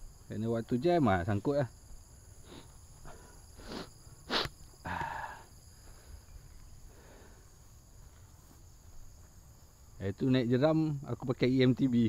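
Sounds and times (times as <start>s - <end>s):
insects droning: 0.0s - 12.0s
sharp sniff: 2.4s - 5.4s
person breathing hard: 2.4s - 7.7s.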